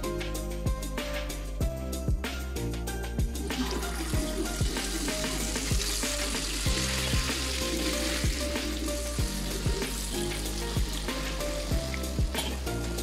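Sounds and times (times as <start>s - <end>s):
background music with a beat: 0.0s - 13.0s
batter sizzling in hot oil: 3.5s - 12.8s.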